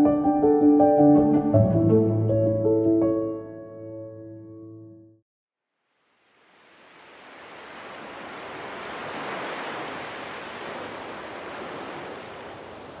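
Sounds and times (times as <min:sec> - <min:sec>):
sea surf waves washing: 0:05.9 - 0:13.0.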